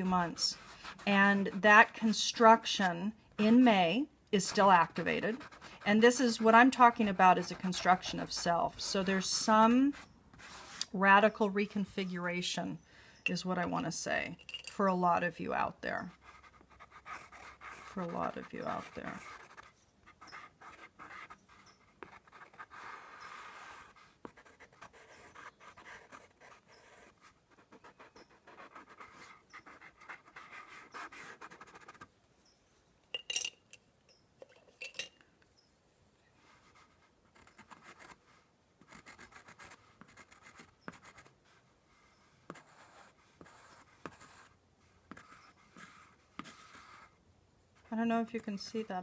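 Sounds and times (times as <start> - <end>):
pencil scratching on paper: 0.0 - 3.7, 4.4 - 11.0, 16.0 - 32.1, 36.5 - 47.2.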